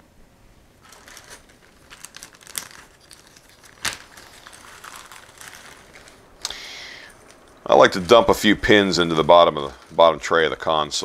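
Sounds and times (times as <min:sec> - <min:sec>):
wire snapping: 0:00.8 - 0:07.7
wire strippers clicking: 0:00.8 - 0:08.3.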